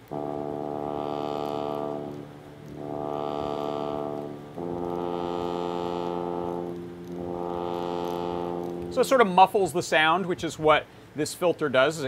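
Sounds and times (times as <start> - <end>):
synthesizer filter sweep: 0.0 - 9.2.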